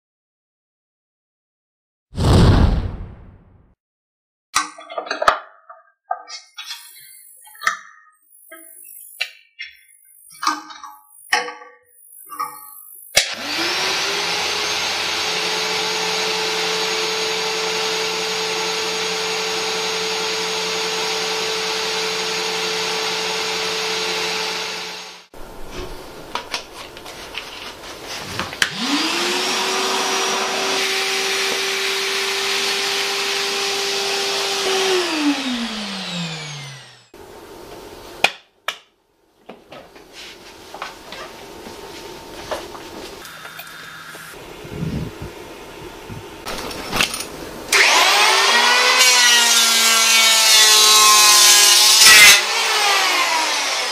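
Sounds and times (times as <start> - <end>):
shop vacuum motor whining: 13.1 - 25.3, 28.6 - 37.2, 43.2 - 49.6, 51.7 - 53.9.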